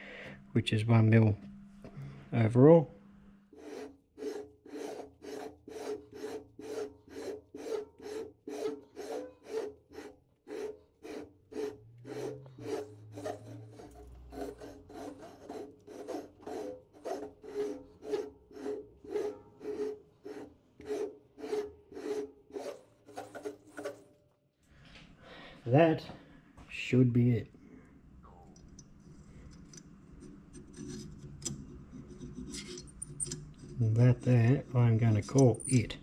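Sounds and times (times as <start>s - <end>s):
lathe tool rasping on cast iron: 3.5s - 24.1s, 29.5s - 36.0s.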